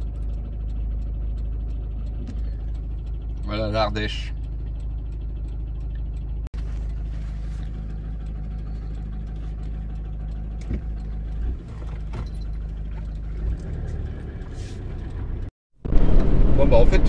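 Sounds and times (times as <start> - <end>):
road rumble: 0.0 - 17.0
van engine running: 0.0 - 17.0.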